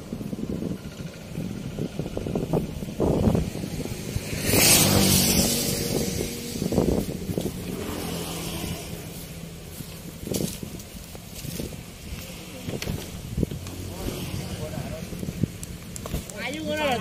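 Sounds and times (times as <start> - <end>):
vehicle engine running: 0.0 - 17.0
loud rushing swell: 1.6 - 9.7.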